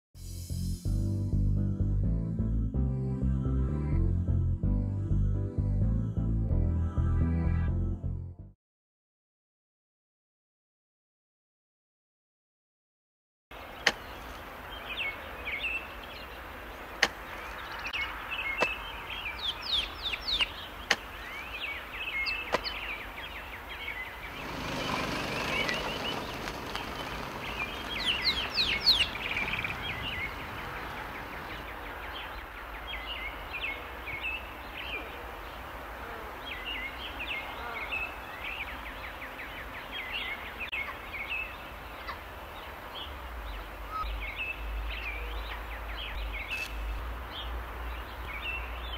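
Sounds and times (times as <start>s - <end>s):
birds chirping and calling: 13.6s - 35.6s, 36.4s - 48.9s
outdoor hiss: 24.1s - 31.8s.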